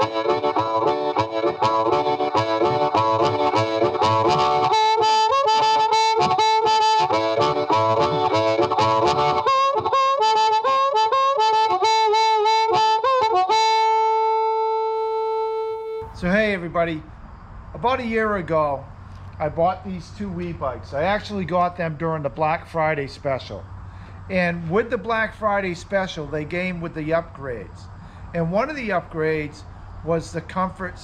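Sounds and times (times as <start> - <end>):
boogie music with harmonica: 0.0 - 16.1.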